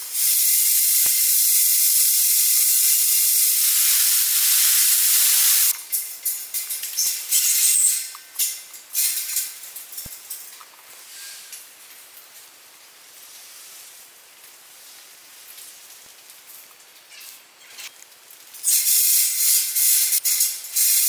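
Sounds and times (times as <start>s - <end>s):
loud shaker-like rattling: 0.0s - 10.7s, 18.5s - 21.0s
faint high-pitched hiss: 0.0s - 21.0s.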